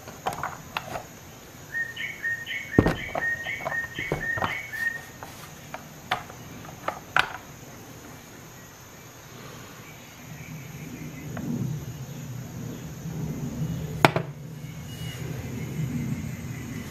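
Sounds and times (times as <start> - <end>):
plastic case clicks and knocks: 2.8 - 4.7.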